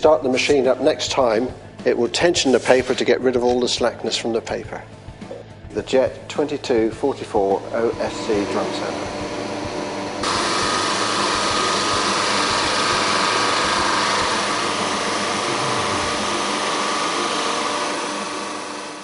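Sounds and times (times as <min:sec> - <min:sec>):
drum sander whirring: 0:06.7 - 0:19.0.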